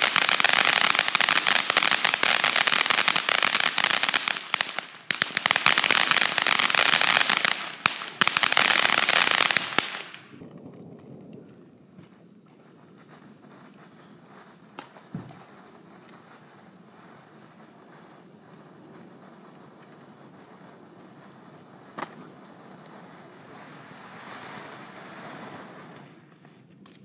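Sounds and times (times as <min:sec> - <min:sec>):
firework fountain hissing: 0:00.0 - 0:10.4, 0:14.3 - 0:26.4.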